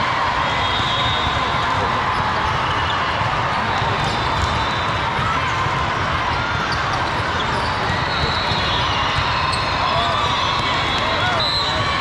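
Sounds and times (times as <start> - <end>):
crowd chatter: 0.0 - 12.0
volleyballs hit and bouncing: 1.3 - 12.0.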